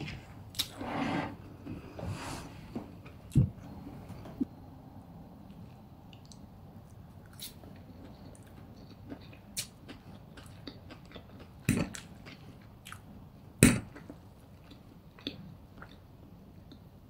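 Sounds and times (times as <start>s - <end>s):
chewing crunchy noodles: 7.2s - 13.1s.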